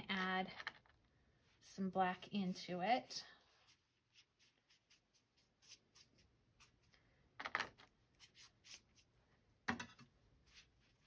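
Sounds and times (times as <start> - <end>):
paintbrush brushing on paper: 2.2 - 6.9, 8.1 - 9.2, 10.4 - 11.0.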